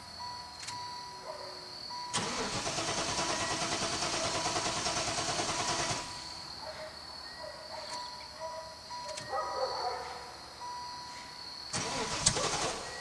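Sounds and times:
starter cranking car engine: 2.1s - 6.4s, 11.7s - 13.0s.

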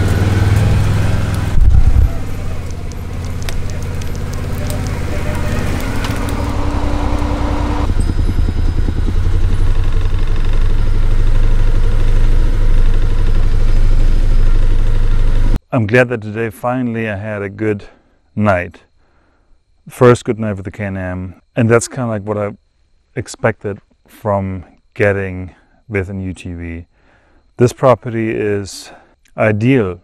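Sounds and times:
utility vehicle engine droning: 0.0s - 15.6s.

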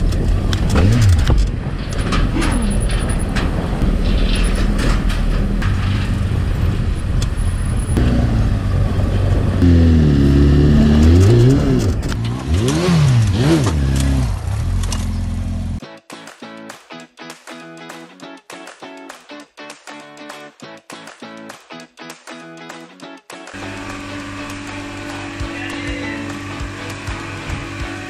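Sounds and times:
sharp clicks and rattles: 0.0s - 8.0s
motorcycle engine revving: 0.2s - 1.6s, 7.8s - 15.8s, 23.6s - 28.0s.

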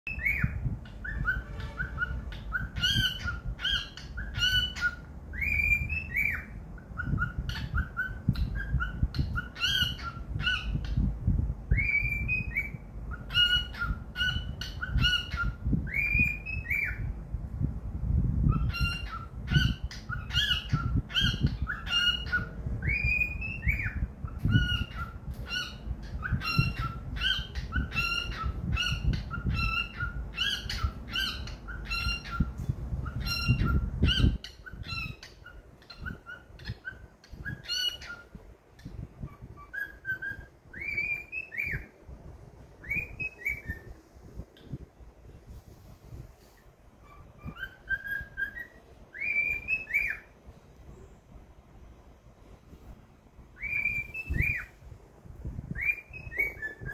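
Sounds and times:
cockatiel whistle: 0.1s - 11.0s, 39.2s - 41.9s, 47.0s - 50.3s, 53.6s - 54.7s, 55.7s - 56.9s
cockatiel chirping: 0.1s - 11.1s, 11.7s - 17.1s, 18.5s - 41.9s, 42.8s - 43.9s, 47.0s - 50.3s, 53.6s - 54.7s, 55.7s - 56.9s.

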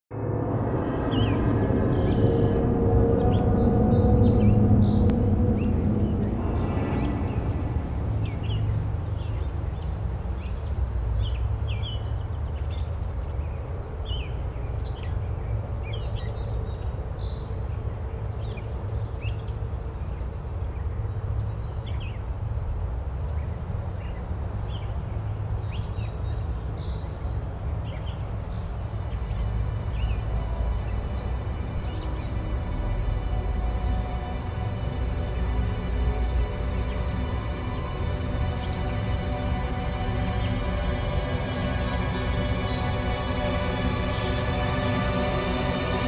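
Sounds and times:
low rumble: 0.1s - 46.0s
small birds chirping: 23.2s - 46.0s.

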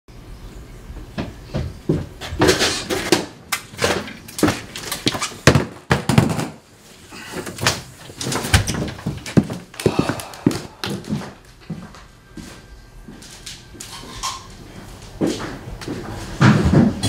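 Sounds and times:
footsteps on wooden floorboards: 1.2s - 2.5s, 7.6s - 13.2s.

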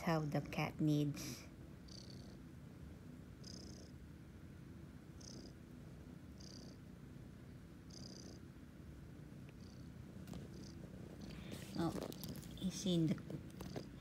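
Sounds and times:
kitten purring: 1.8s - 2.6s, 3.3s - 4.1s, 5.1s - 14.0s.

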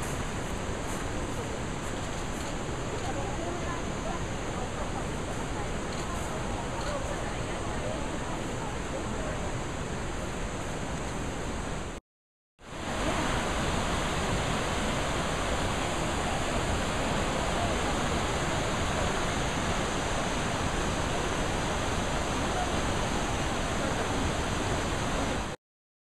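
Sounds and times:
river rushing over rocks: 12.7s - 25.6s.

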